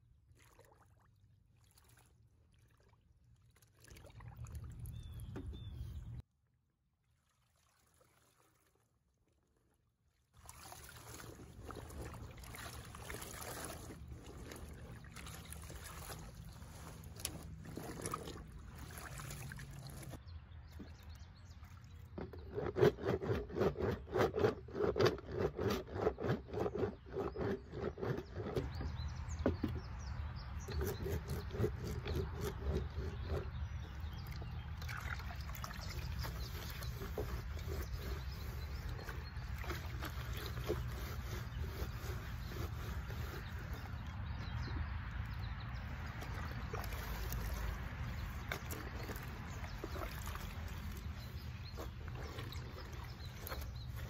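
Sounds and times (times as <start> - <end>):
water sloshing in a tub: 0.0 - 6.3, 6.9 - 54.0
soap rasping on metal washboard: 22.2 - 28.9, 30.6 - 33.8, 36.1 - 44.1.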